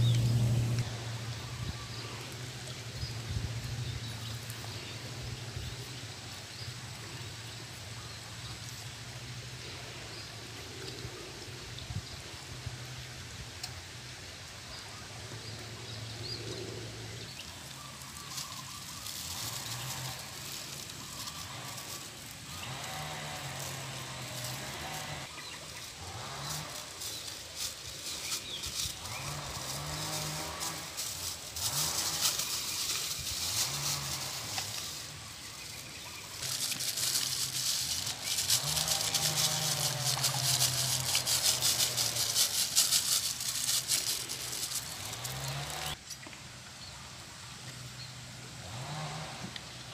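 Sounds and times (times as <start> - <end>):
plastic bag crinkling: 17.6 - 46.0.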